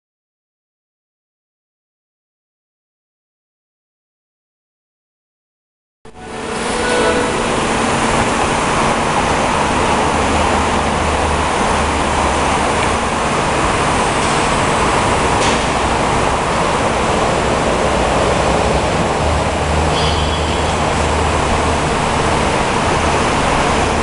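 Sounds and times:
machinery rushing noise: 0:06.1 - 0:24.0.

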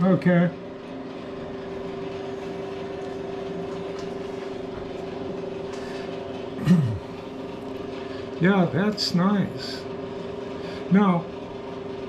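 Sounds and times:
grinder motor humming: 0:00.0 - 0:12.0.

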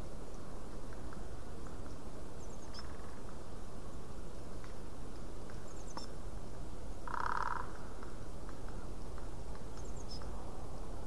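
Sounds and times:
background noise: 0:00.0 - 0:11.0
fast rattling bird call: 0:07.0 - 0:07.8
high bird calls: 0:09.8 - 0:10.4.

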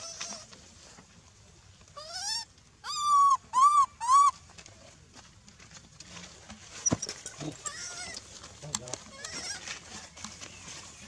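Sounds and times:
monkey high calls: 0:02.0 - 0:04.4, 0:07.6 - 0:08.2.

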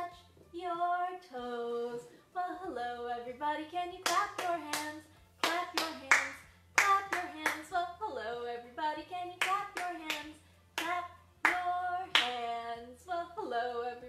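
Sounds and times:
woman singing: 0:00.0 - 0:14.0
hands clapping: 0:04.0 - 0:07.6, 0:09.4 - 0:12.4.

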